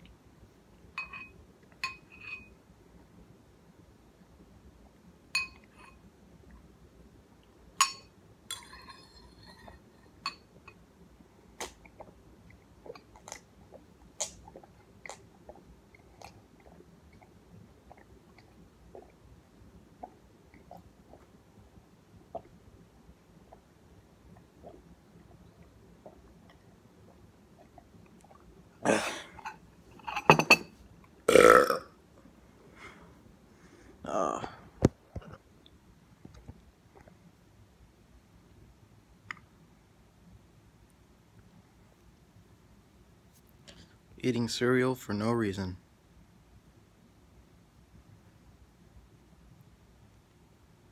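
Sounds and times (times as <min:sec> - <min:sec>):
spoon clinking on ceramic bowl: 0:01.0 - 0:02.5, 0:05.4 - 0:06.0, 0:07.8 - 0:10.8
chewing: 0:11.6 - 0:19.2
person burping: 0:28.8 - 0:29.6, 0:31.3 - 0:32.0, 0:34.1 - 0:34.6.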